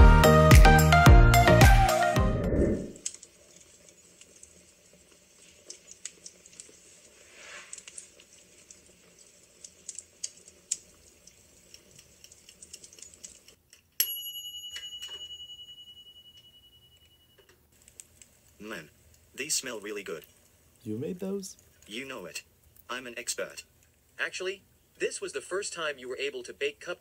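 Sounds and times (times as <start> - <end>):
intro music: 0.0 - 3.0
kitchen timer bell ringing: 14.0 - 17.5.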